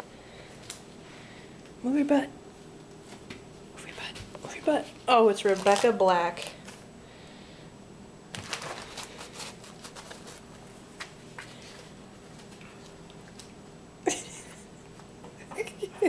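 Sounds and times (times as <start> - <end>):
paper rustling and tearing: 5.4 - 6.8, 8.3 - 10.7.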